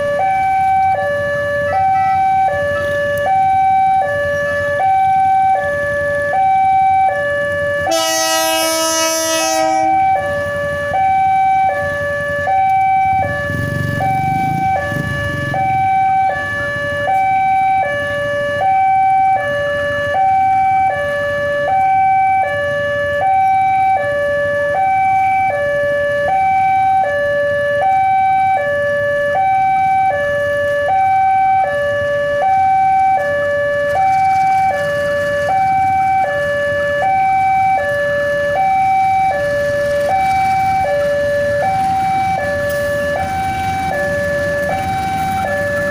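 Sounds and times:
level crossing alarm two-tone signal: 0.0s - 45.9s
horn sounding: 7.8s - 10.2s.

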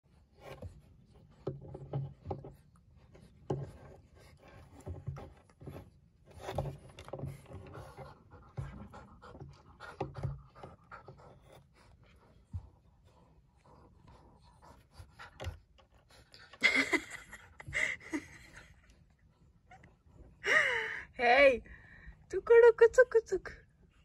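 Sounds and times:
puppy panting: 7.1s - 20.4s.

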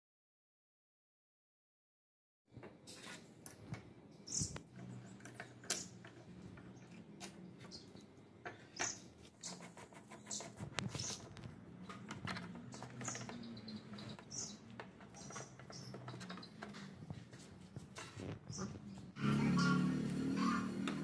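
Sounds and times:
screws squeaking: 7.7s - 17.1s.

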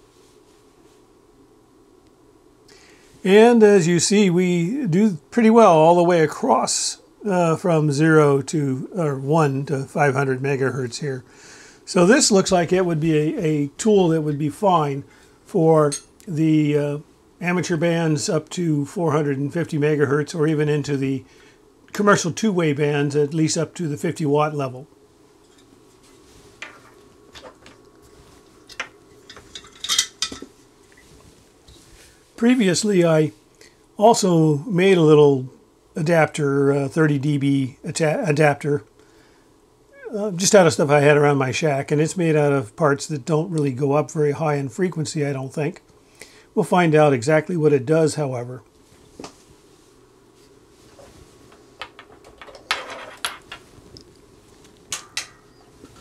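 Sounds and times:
faint low hum: 0.0s - 56.0s.

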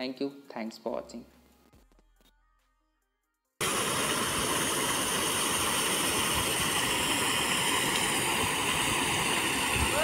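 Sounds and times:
pond aerators churning water: 3.6s - 10.0s.

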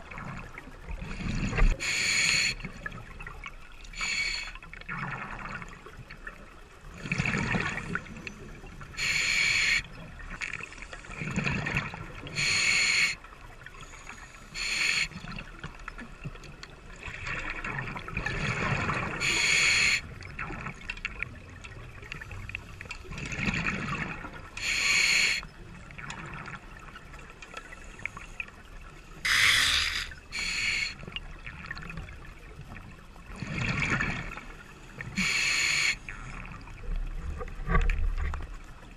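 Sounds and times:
regulator inhalation hiss: 1.8s - 2.6s, 4.0s - 4.6s, 9.0s - 9.8s, 12.4s - 13.2s, 14.3s - 15.2s, 19.2s - 20.0s, 24.6s - 25.4s, 29.2s - 31.0s, 35.2s - 36.0s.

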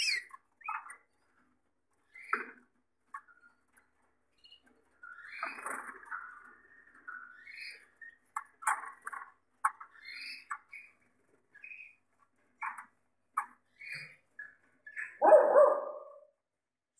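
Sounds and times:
harsh bird call: 0.0s - 0.3s
canaries chirping: 0.0s - 15.8s.

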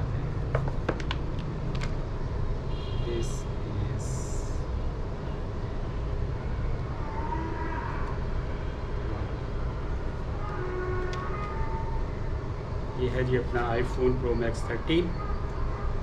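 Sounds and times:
low urban rumble: 0.0s - 16.0s.

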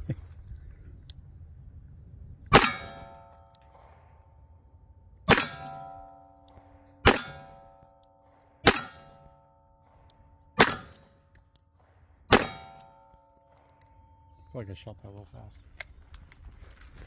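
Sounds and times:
metallic ring of steel target: 2.5s - 4.6s, 5.2s - 11.3s, 12.3s - 14.6s.

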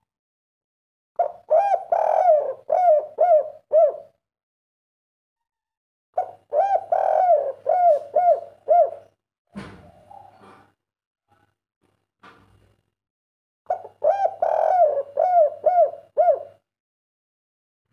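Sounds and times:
dove cooing: 1.2s - 4.2s, 6.2s - 9.2s, 13.7s - 16.6s.

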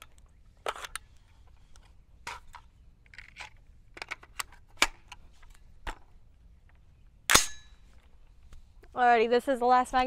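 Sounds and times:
magazine inserted into rifle: 0.0s - 6.1s
rifle handling clicks and knocks: 0.0s - 8.9s.

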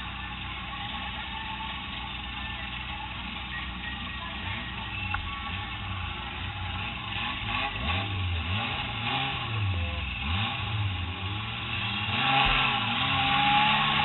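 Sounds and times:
car engine revving: 4.9s - 14.0s.

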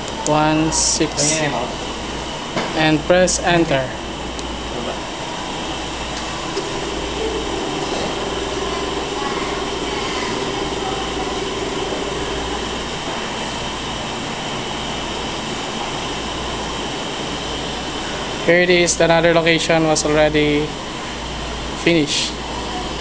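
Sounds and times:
small electric motor humming: 6.0s - 13.1s.

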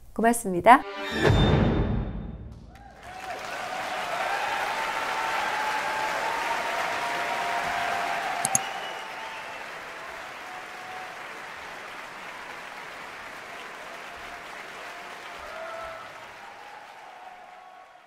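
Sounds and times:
audience applauding: 2.7s - 18.0s.

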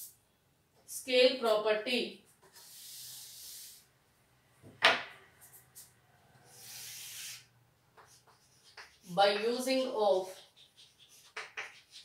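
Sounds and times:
duster wiping chalkboard: 8.0s - 12.0s.

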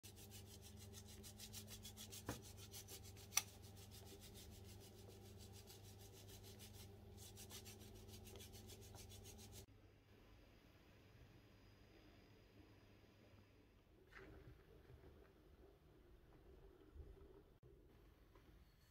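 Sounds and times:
dough rubbed between fingers: 0.0s - 9.7s.

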